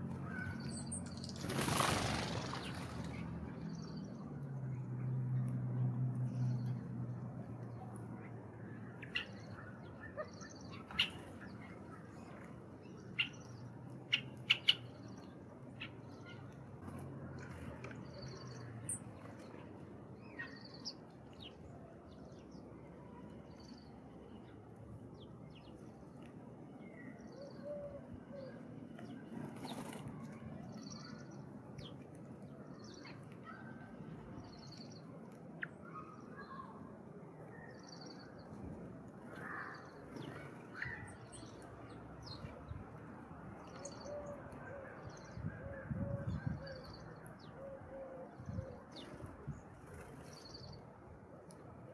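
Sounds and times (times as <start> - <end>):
scattered bird calls: 8.6 - 21.6
bird chirping: 13.1 - 16.5.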